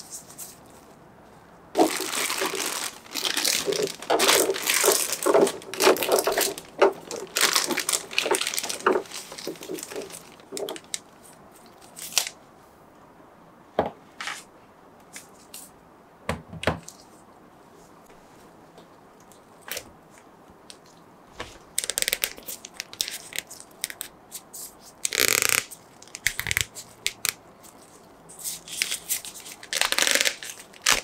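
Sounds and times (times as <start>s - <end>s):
plastic packaging crinkling: 1.8s - 12.4s, 21.7s - 24.1s, 25.0s - 31.0s.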